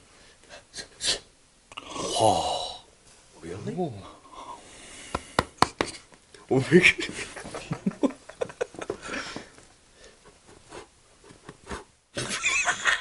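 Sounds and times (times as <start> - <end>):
rustling and light taps: 7.0 - 11.9.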